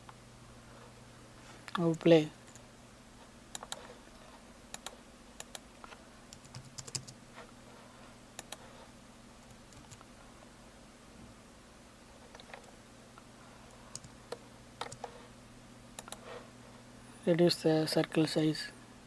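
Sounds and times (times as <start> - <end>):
low steady hum: 0.0 - 19.0
keyboard and mouse clicks: 3.5 - 3.9, 4.7 - 7.2, 8.4 - 8.7, 9.4 - 10.1, 12.3 - 12.7, 13.9 - 15.2, 16.0 - 16.3.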